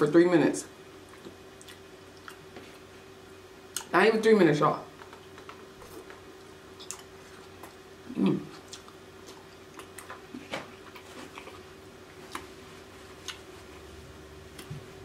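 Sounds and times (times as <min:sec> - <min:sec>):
faint steady hum: 0:00.0 - 0:15.0
chewing and lip smacking: 0:01.1 - 0:02.9, 0:05.1 - 0:07.8, 0:08.5 - 0:12.6, 0:13.2 - 0:13.5.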